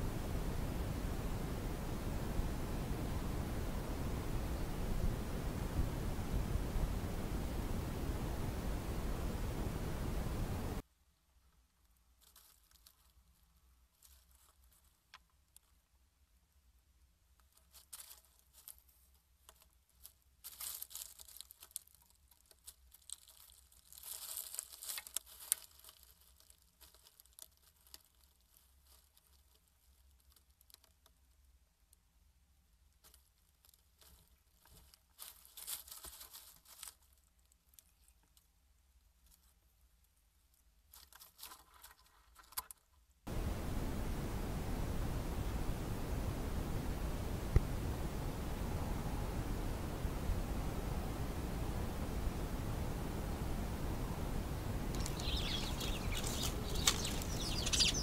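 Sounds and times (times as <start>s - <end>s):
steady hiss: 0.0s - 10.9s, 43.3s - 58.0s
rodent rustling in straw: 12.1s - 15.1s, 17.4s - 30.8s, 33.0s - 39.8s, 54.9s - 58.0s.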